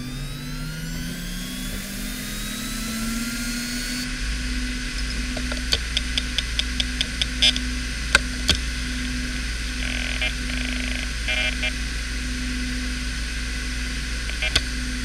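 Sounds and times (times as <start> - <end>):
hard drive spinning up: 0.0 - 15.0
hard drive heads clicking: 5.0 - 8.6.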